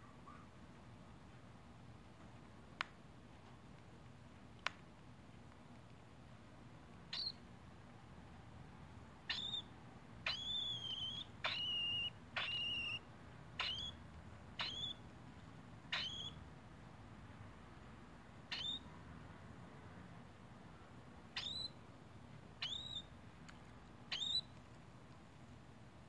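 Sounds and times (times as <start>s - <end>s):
cockatiel chick calling: 7.1s - 7.4s, 9.2s - 15.1s, 15.9s - 16.4s, 18.5s - 18.9s, 21.3s - 21.8s, 22.6s - 23.2s, 24.1s - 24.6s.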